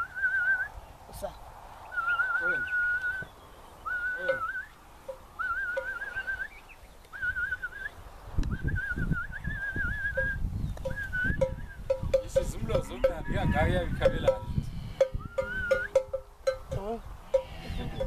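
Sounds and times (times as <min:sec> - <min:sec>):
warbling whistling: 0:01.9 - 0:04.8, 0:05.4 - 0:06.6, 0:07.2 - 0:12.1, 0:15.2 - 0:16.0.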